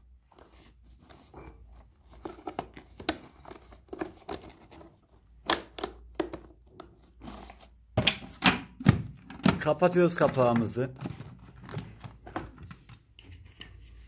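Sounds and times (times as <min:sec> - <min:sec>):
plastic clicks and knocks: 0:08.0 - 0:12.8.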